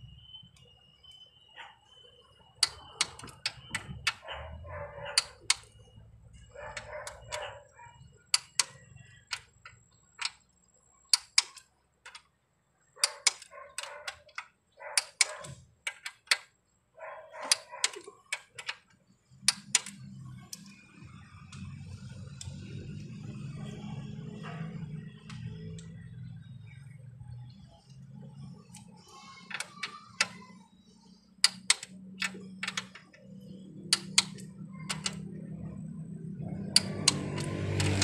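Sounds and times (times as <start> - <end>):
ratchet rasping: 13.0 - 16.4, 28.6 - 33.3
torque wrench clicking: 31.4 - 33.0, 33.9 - 35.2.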